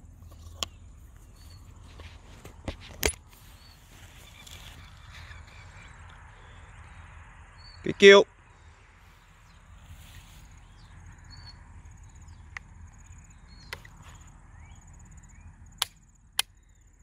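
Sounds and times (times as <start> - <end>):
faint bird chirps: 3.4 - 7.0.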